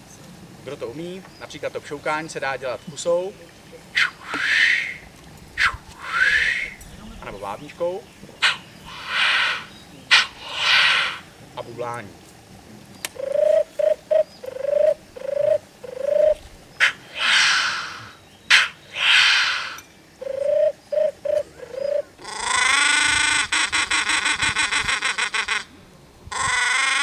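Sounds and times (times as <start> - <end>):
hissing bird calls: 1.0 - 11.6, 12.8 - 27.0
buzzy rattling call: 3.8 - 12.0, 13.0 - 25.7, 26.3 - 27.0.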